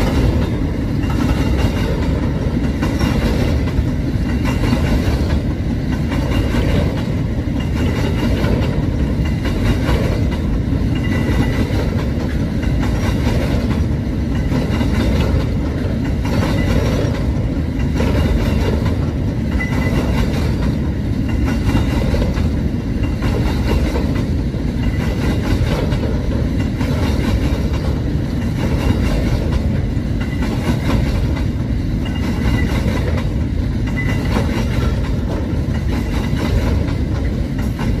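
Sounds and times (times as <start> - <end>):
freight train rumbling past: 0.0 - 38.0
wheels clattering over rails: 0.0 - 38.0.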